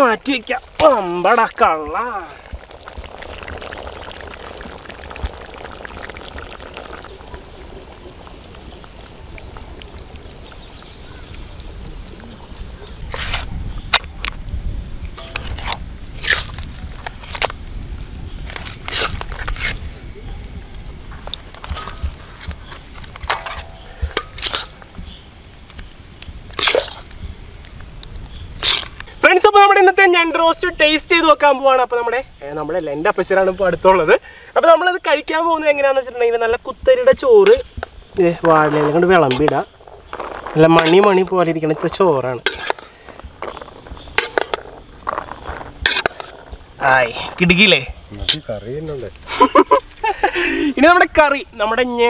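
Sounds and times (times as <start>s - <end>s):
gravy bubbling and popping: 0.0s - 29.2s, 36.5s - 48.4s
metal ladle scraping a pan: 23.2s - 24.9s, 28.6s - 29.0s, 38.6s - 46.6s.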